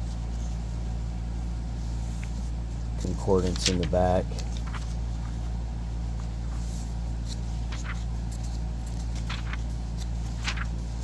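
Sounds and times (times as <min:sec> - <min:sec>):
steady low hum: 0:00.0 - 0:11.0
thin paper pages turning: 0:02.0 - 0:05.6, 0:06.2 - 0:11.0.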